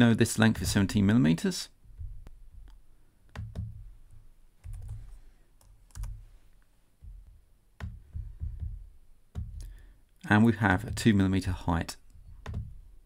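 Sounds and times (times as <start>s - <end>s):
keyboard keys clicking: 4.6s - 6.2s.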